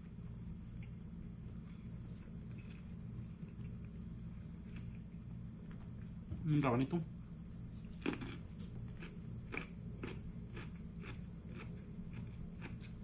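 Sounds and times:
person chewing crunchy radish: 0.7 - 5.2, 7.8 - 13.0.

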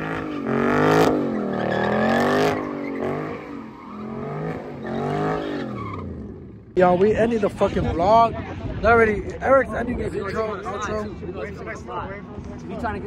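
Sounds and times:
car engine revving: 0.0 - 6.8
tyres squealing on asphalt: 0.0 - 6.8.

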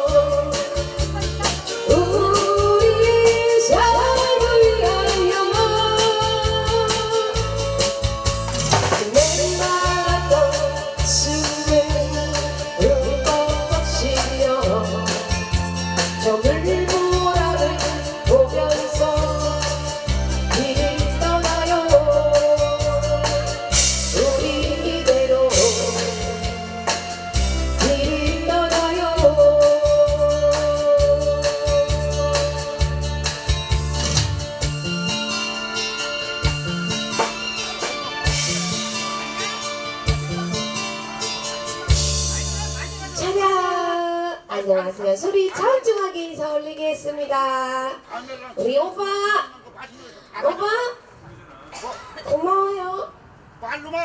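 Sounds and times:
trot music with drum beat: 0.0 - 4.2, 5.6 - 24.6.

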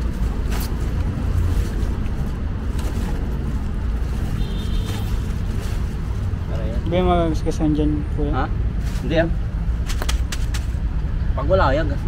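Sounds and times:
plastic bag rustling: 0.0 - 6.5
steady low rumble: 0.0 - 12.0.

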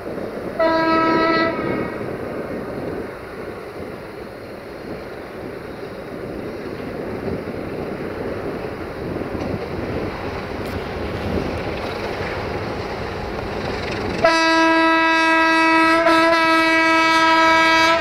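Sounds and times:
freight train running: 0.0 - 18.0
locomotive horn blast: 0.6 - 2.0, 14.2 - 18.0.

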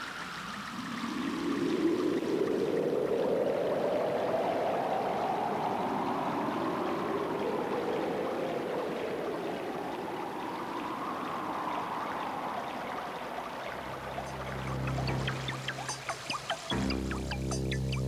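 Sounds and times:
sweeping rushing noise: 13.7 - 18.0
music with low bass note: 14.2 - 18.0.

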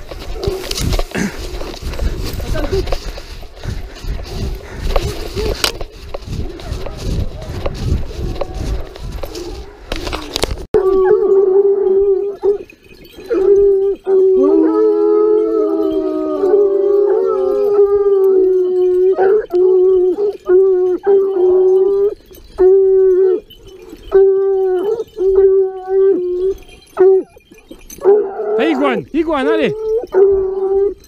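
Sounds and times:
hounds baying: 10.8 - 31.0.

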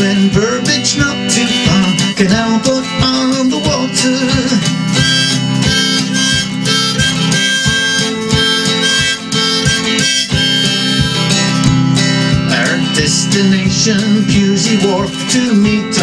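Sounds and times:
strummed acoustic guitar: 0.0 - 16.0
harmonica melody: 4.5 - 12.9.

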